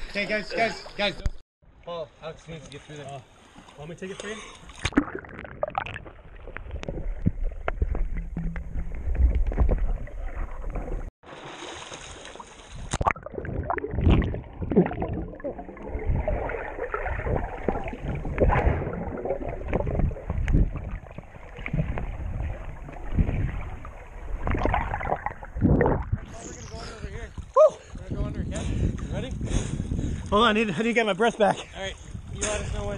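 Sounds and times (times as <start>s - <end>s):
muffled underwater water movement: 12.4s - 28.1s.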